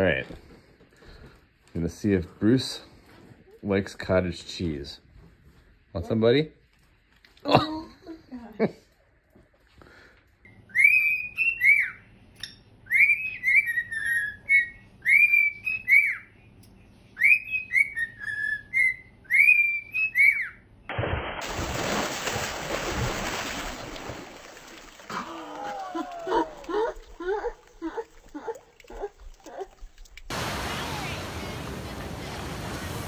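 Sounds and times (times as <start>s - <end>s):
cockatiel whistling tune: 10.7s - 12.0s, 12.8s - 16.3s, 17.2s - 20.6s.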